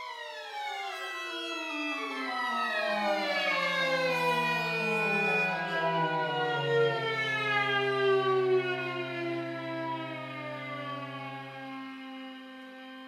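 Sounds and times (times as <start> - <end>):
violin: 0.0 - 13.0.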